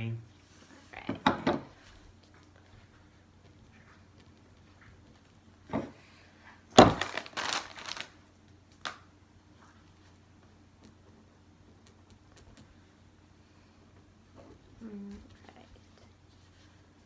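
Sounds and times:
foil chip bag crinkling: 6.8 - 9.0.

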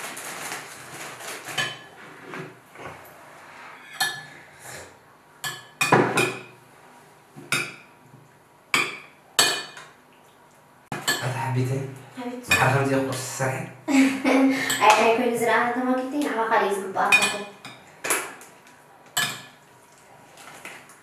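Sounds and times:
dishes and cutlery clinking: 1.5 - 2.9, 3.8 - 4.4, 5.4 - 6.5, 8.8 - 10.0, 10.9 - 11.4, 12.5 - 12.9, 17.1 - 18.3, 19.1 - 19.6.

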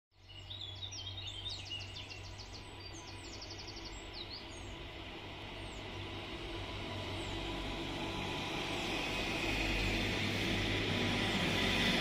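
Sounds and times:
songbird chirping and trilling: 0.2 - 4.9
electric train humming: 2.1 - 12.0.

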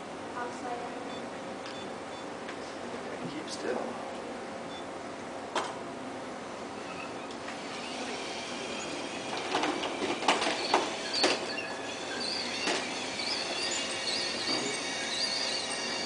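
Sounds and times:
electric motors whining: 6.7 - 16.0
knocks from tracks and metal frame: 9.0 - 16.0.

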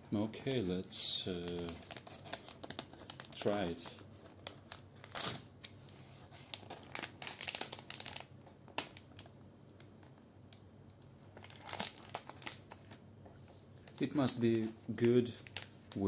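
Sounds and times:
plastic pouch crinkling: 0.5 - 9.3, 11.3 - 13.0, 13.8 - 16.0.

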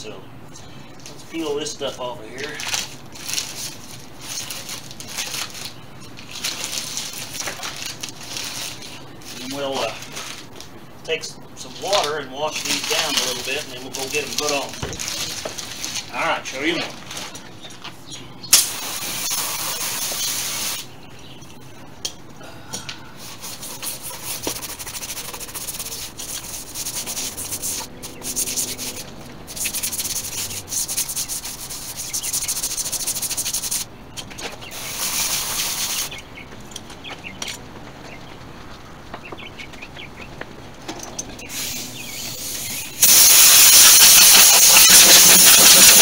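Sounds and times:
garden hose spraying water: 18.5 - 20.9, 23.2 - 33.9, 34.7 - 36.2, 41.5 - 46.0
scrub brush scrubbing tire: 23.2 - 33.9, 34.7 - 36.1, 41.5 - 46.0.

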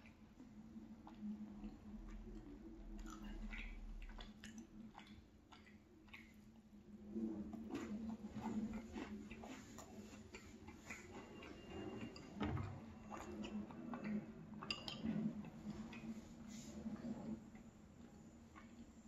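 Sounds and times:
wet mouth clicks and lip smacks: 1.0 - 6.7.

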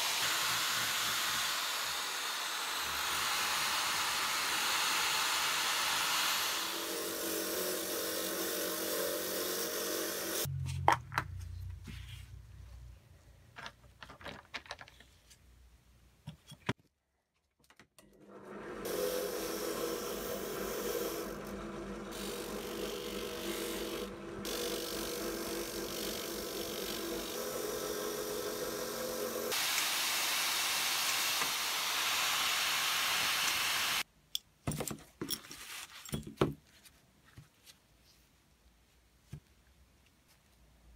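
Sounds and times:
drill press abrasive wheel grinding: 0.0 - 10.5, 18.1 - 34.0
rotary tool grinding: 0.0 - 10.5, 18.8 - 29.6.

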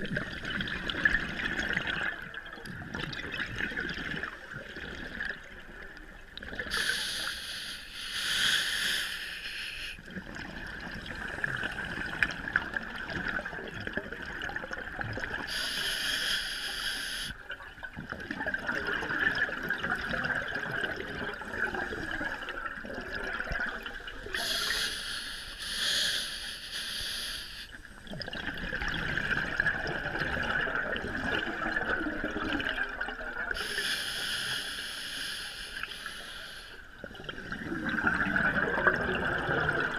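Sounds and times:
exhaled bubbles underwater: 0.0 - 7.1, 10.0 - 15.9, 17.4 - 24.9, 27.7 - 34.6, 36.8 - 39.9
regulator hiss: 6.7 - 10.0, 15.5 - 17.4, 24.4 - 27.8, 33.6 - 36.8.

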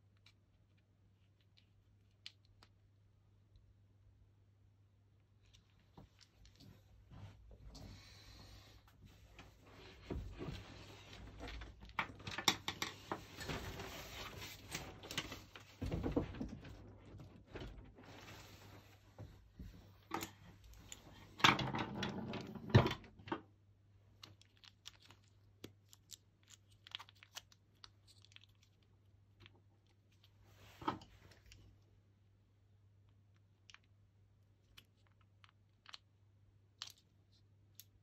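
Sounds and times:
cable rustling: 8.9 - 22.6.

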